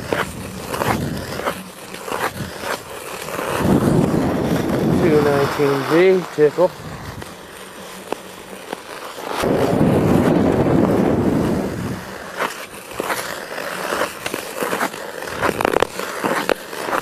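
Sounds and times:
ice skates scraping on ice: 0:00.0 - 0:17.0.

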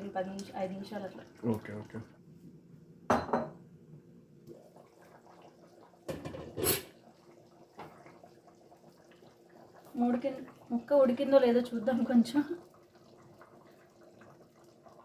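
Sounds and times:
glass lid clattering: 0:06.1 - 0:06.9.

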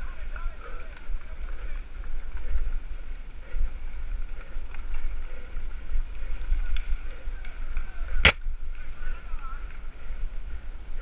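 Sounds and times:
bike tyre and frame rattle: 0:00.0 - 0:10.1.

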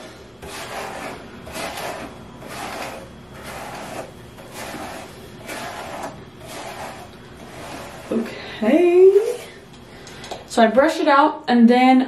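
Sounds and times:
brush swishing through wet hair: 0:00.4 - 0:08.3.

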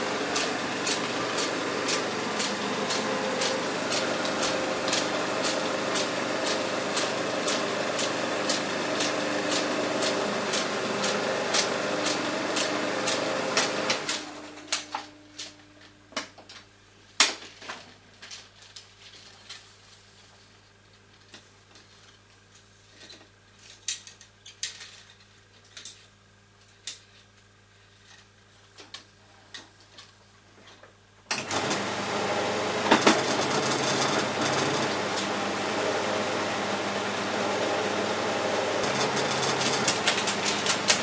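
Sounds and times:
film projector running down: 0:00.0 - 0:15.1, 0:31.3 - 0:41.0
film projector running: 0:00.0 - 0:15.6, 0:31.3 - 0:41.0
metal film reels clicking: 0:00.3 - 0:15.5, 0:38.8 - 0:41.0.

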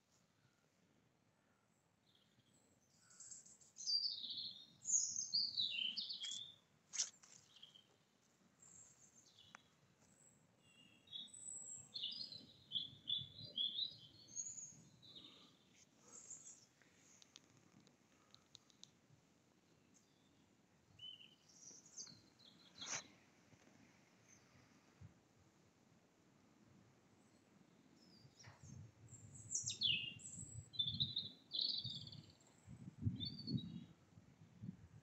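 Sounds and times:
small songbird singing: 0:02.0 - 0:08.0, 0:08.6 - 0:17.3, 0:20.0 - 0:23.1, 0:27.3 - 0:34.0.

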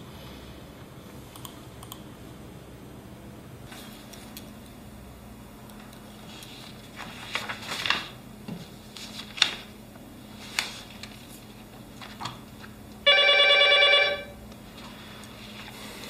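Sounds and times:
desk telephone ringing: 0:13.0 - 0:14.4.

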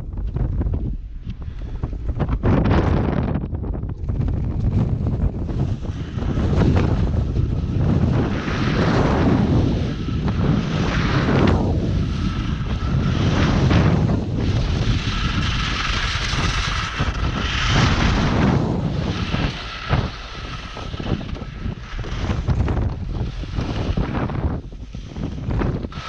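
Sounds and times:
wind roaring over microphone: 0:00.0 - 0:26.0
skis hissing and scraping on snow: 0:05.4 - 0:26.0.

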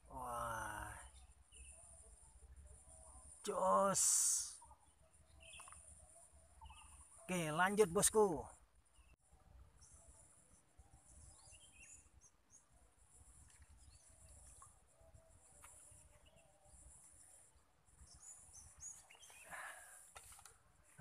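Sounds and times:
short bird chirps: 0:04.4 - 0:07.3
brief rustle: 0:20.0 - 0:20.6.

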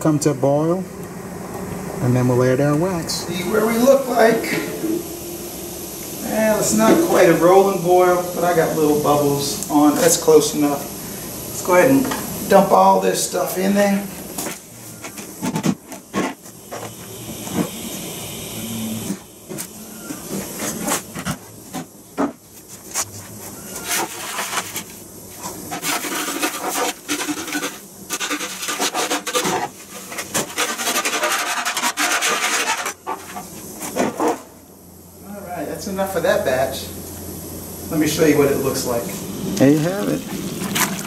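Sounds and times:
wax comb rustling and scraping: 0:22.5 - 0:34.4.

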